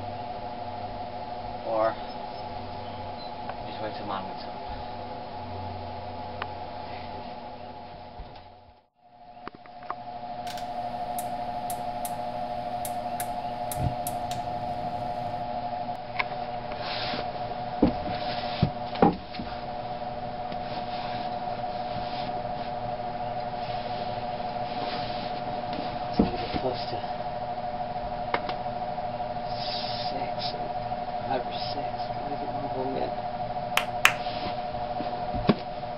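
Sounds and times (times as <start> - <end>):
steady hum: 10.1 - 15.4, 33.8 - 34.2
sharp ticks: 10.5 - 15.4, 33.8 - 34.2.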